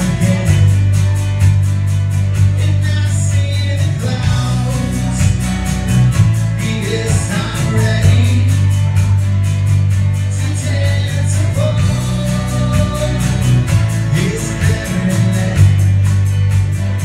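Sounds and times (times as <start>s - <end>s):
electric guitar: 0.0s - 17.0s
heavy bass notes: 0.0s - 17.0s
live band playing: 0.0s - 17.0s
quick steady beat: 0.0s - 17.0s
person singing: 6.5s - 9.0s, 10.3s - 16.0s.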